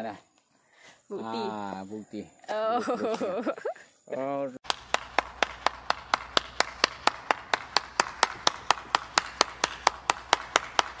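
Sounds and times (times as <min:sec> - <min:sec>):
person clapping hands: 0:04.6 - 0:11.0.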